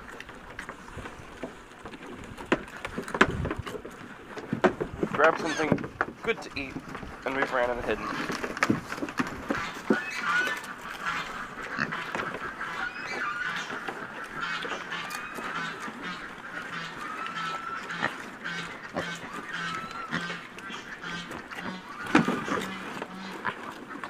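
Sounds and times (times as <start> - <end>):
pigs munching: 0.0 - 24.0
pigs squealing and grunting: 5.2 - 6.6, 7.2 - 8.8, 9.4 - 24.0.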